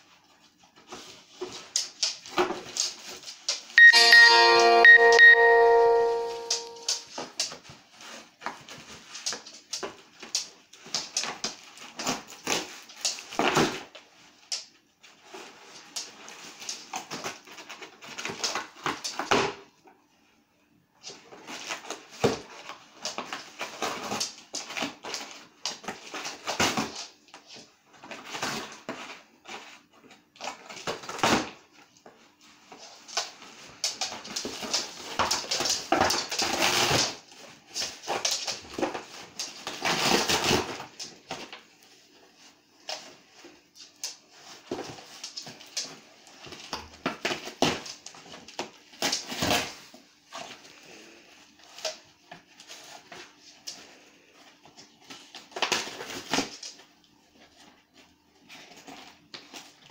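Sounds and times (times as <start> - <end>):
dog tearing cardboard box: 7.1 - 14.0, 21.4 - 27.1, 28.0 - 31.6, 34.0 - 41.6, 46.4 - 50.6, 54.8 - 56.8.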